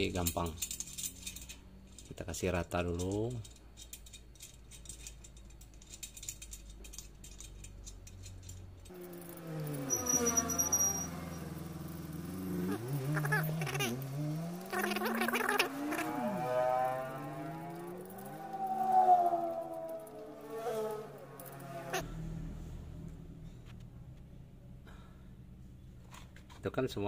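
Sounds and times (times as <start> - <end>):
faint metallic clicking of spokes: 0.0 - 22.1
sliding pitch sound: 8.9 - 22.2.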